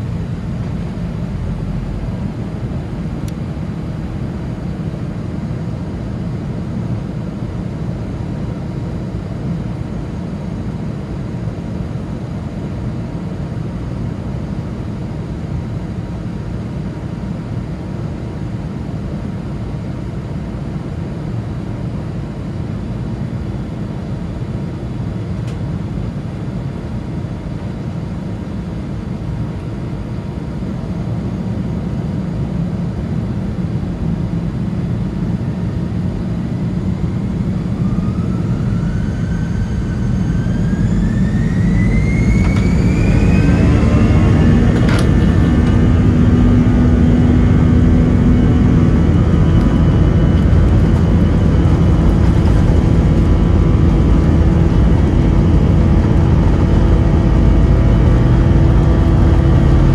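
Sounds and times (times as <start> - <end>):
jet engines roaring: 33.9 - 59.9.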